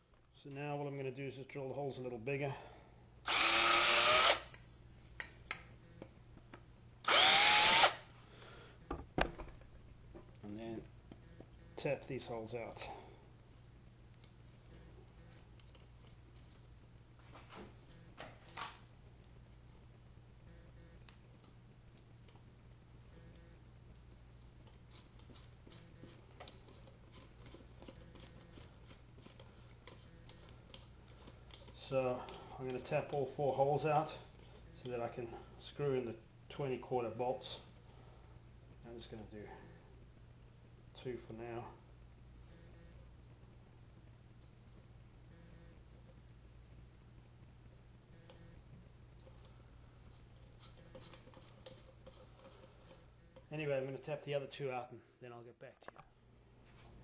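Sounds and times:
low steady hum: 0.0 - 57.0
power drill whining: 3.3 - 4.5, 7.0 - 8.0.

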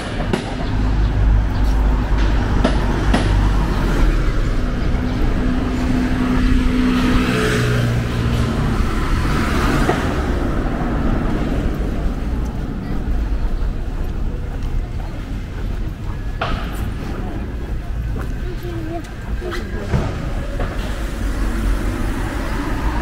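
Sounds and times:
low engine rumble: 0.0 - 23.0
tyres hissing on road: 19.2 - 23.0.

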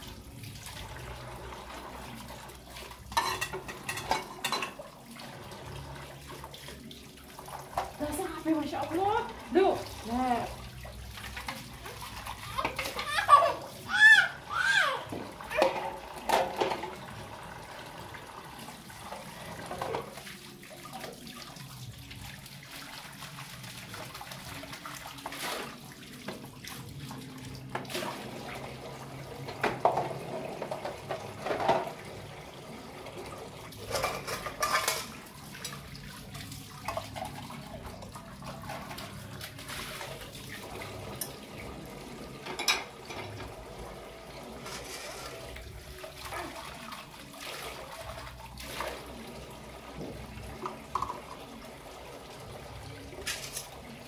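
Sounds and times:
water running from a tap: 0.0 - 54.0.

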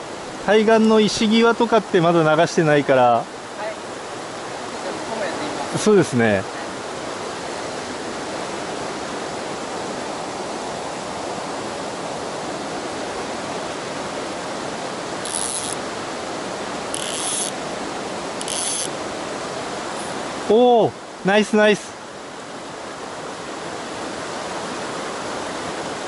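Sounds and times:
stream rushing over rocks: 0.0 - 26.0
fly reel ratchet buzzing: 15.2 - 15.8, 16.9 - 17.6, 18.4 - 19.0.

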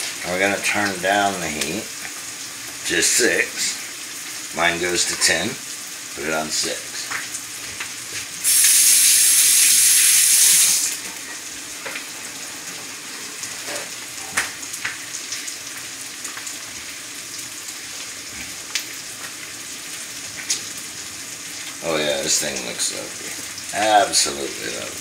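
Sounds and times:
meat sizzling in a skillet: 1.4 - 25.0
loud hissing rush: 8.4 - 11.0.

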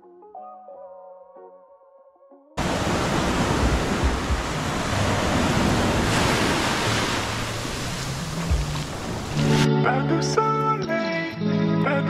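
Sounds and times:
surf washing over sand: 2.6 - 9.7
wind rumbling on microphone: 2.6 - 9.7.

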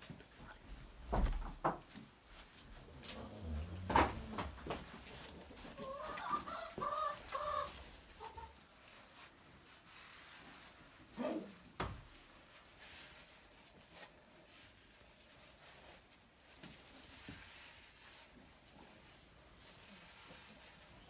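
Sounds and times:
chicken clucking: 5.7 - 8.6.

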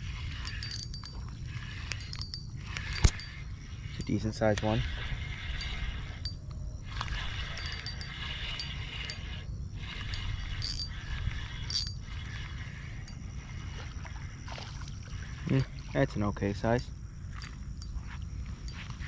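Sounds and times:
fishing reel whirring: 0.0 - 19.0.

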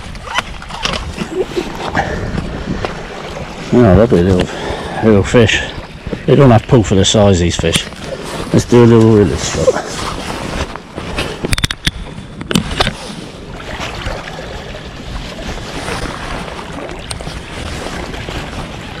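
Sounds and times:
wind on microphone: 0.0 - 6.6
sea water lapping against rocks: 0.0 - 19.0.

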